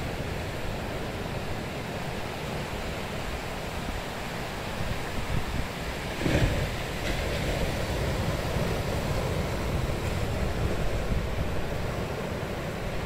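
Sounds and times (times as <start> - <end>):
surf breaking on beach: 5.4 - 11.7.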